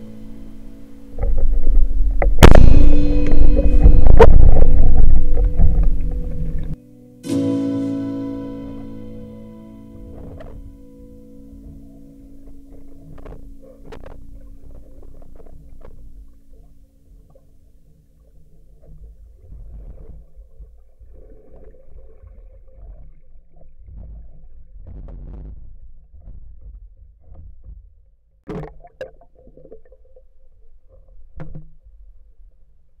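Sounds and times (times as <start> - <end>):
underwater rumble: 0.0 - 6.8, 10.0 - 32.9
water splashing: 1.0 - 6.8, 10.0 - 24.9, 28.5 - 31.8
water swishing: 1.0 - 6.8, 10.0 - 24.9.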